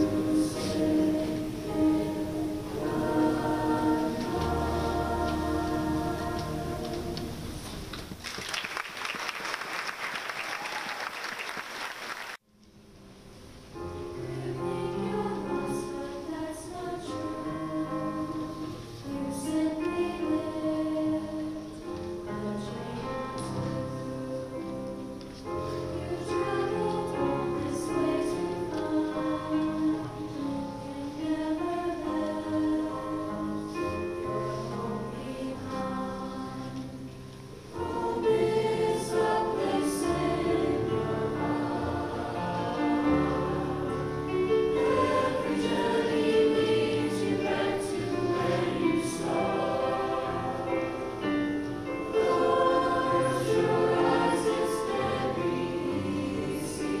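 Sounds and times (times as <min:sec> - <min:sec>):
choir singing: 0:00.0 - 0:07.9, 0:14.1 - 0:57.0
piano accompaniment: 0:00.0 - 0:08.2, 0:12.4 - 0:57.0
audience applause: 0:07.9 - 0:12.4.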